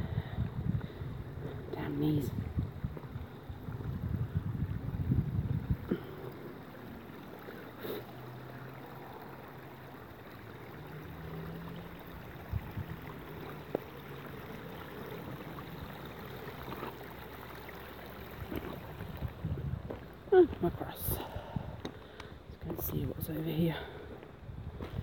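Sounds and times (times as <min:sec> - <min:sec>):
wind buffeting microphone: 0:00.0 - 0:06.5, 0:12.2 - 0:13.4, 0:18.2 - 0:23.3, 0:24.2 - 0:25.0.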